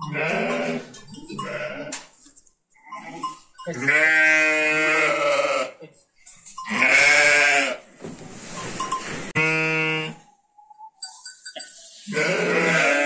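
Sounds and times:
sheep bleating: 0.0 - 2.1, 2.9 - 5.9, 6.6 - 7.8, 9.4 - 10.2, 12.0 - 13.0
soft rustling: 7.9 - 9.4.

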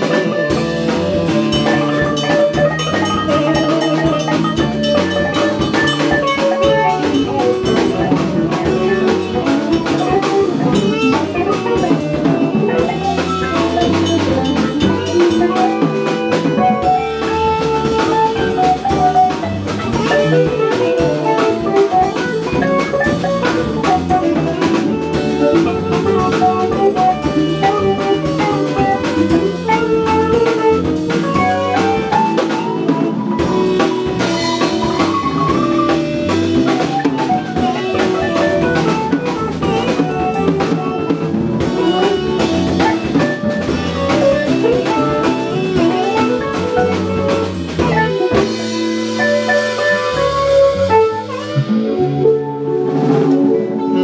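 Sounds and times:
jazz band playing live: 0.0 - 54.0.

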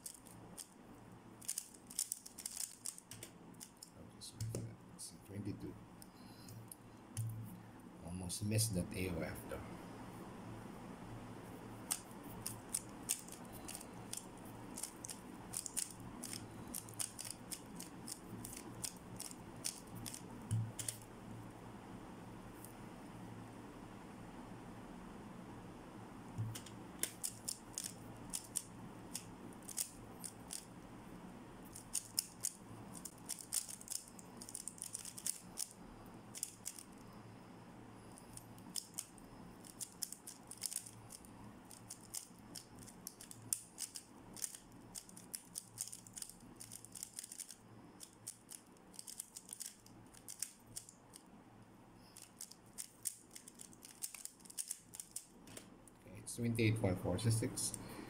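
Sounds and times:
speed cube plastic clicks: 1.4 - 4.6, 11.9 - 21.0, 26.4 - 30.7, 31.7 - 35.8, 36.4 - 36.9, 38.3 - 51.3, 52.2 - 55.7.

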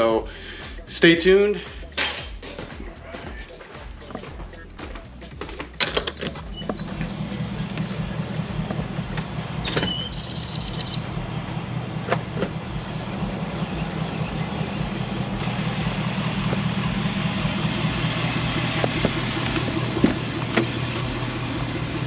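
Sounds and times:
pickup engine idling: 0.0 - 22.0
short high chirp: 9.6 - 11.2.

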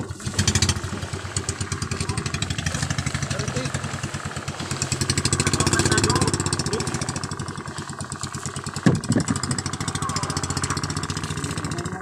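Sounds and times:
boat engine idling: 0.0 - 12.0
thumps: 8.6 - 11.8.

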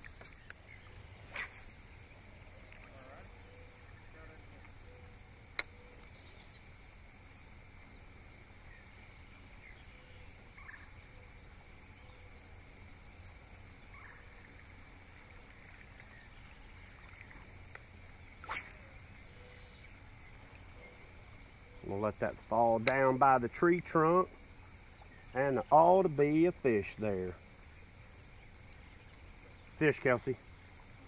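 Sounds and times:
distant bird calls: 0.0 - 31.0
fishing lure cast swish: 1.2 - 1.7, 17.7 - 19.2
sharp click: 22.8 - 23.0.

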